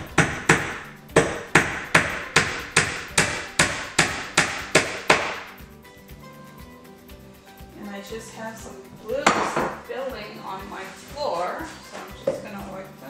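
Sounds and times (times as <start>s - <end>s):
hammer striking nails: 0.0s - 5.6s.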